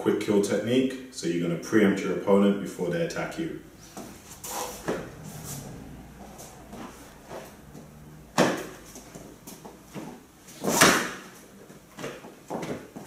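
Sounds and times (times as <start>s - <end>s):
thumps and slaps on gym mat: 8.3s - 8.8s, 9.5s - 11.4s.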